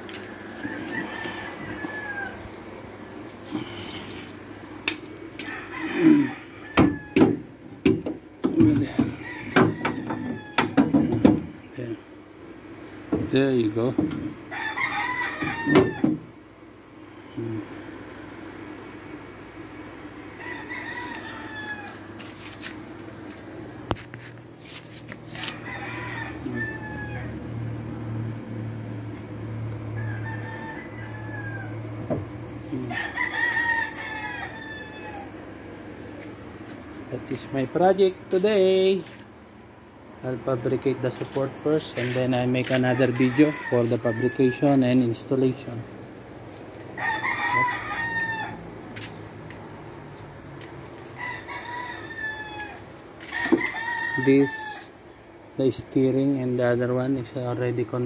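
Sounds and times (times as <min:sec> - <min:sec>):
steady low hum: 0:00.0 - 0:53.8, 0:54.6 - 0:58.0
rooster crowing: 0:00.1 - 0:04.2, 0:05.3 - 0:07.9, 0:08.6 - 0:11.6, 0:14.4 - 0:16.3, 0:20.1 - 0:22.6, 0:25.3 - 0:36.2, 0:41.7 - 0:45.8, 0:46.5 - 0:55.1.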